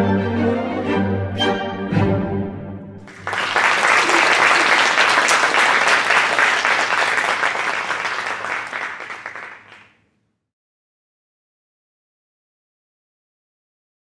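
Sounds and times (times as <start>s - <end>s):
audience applauding: 3.0s - 9.9s.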